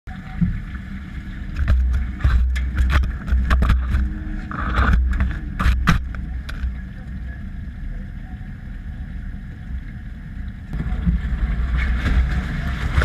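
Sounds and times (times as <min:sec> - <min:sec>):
water sloshing: 0:00.1 - 0:13.0
washing machine drum rumble: 0:10.7 - 0:13.0.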